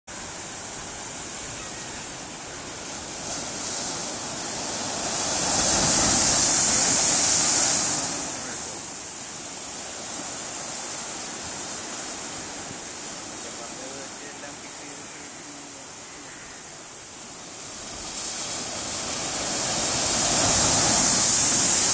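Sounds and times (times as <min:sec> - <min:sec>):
waves breaking: 0:00.1 - 0:21.9
wave crashing over concrete: 0:02.0 - 0:15.0, 0:17.5 - 0:21.9.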